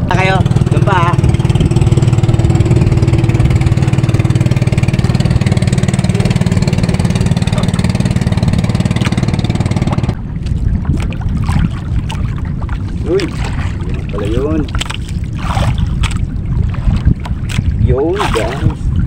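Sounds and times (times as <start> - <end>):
boat engine puttering: 0.0 - 19.0
water lapping: 0.0 - 19.0.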